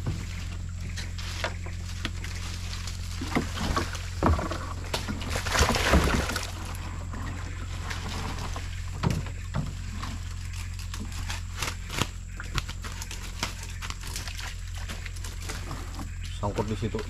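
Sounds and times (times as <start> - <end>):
water trickling and splashing: 3.0 - 8.7.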